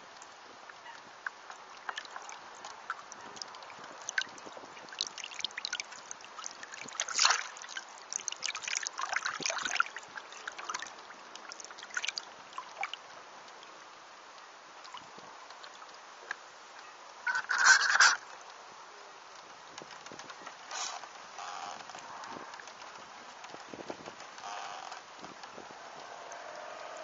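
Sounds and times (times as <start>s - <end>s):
water splashing against hull: 0.9s - 13.6s.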